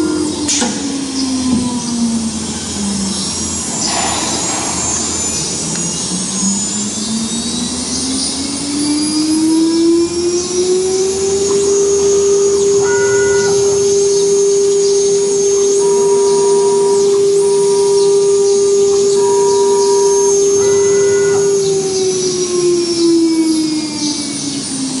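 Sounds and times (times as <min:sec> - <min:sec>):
spindle motors whining: 0:00.0 - 0:25.0
constant rushing noise: 0:03.6 - 0:07.8.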